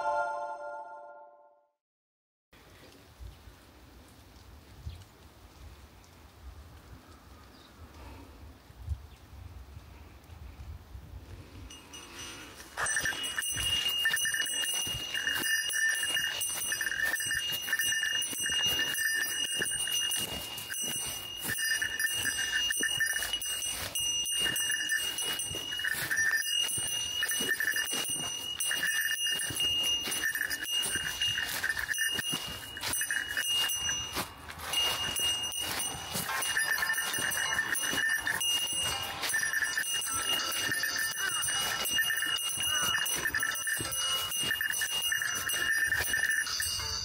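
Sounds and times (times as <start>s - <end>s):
bear bell ringing: 0.0s - 1.3s, 11.7s - 47.0s
electronic jingle from speaker: 0.0s - 1.4s.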